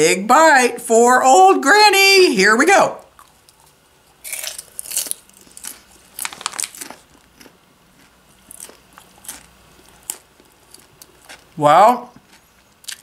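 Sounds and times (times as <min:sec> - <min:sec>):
person chewing popcorn crunchily: 0:03.1 - 0:13.0.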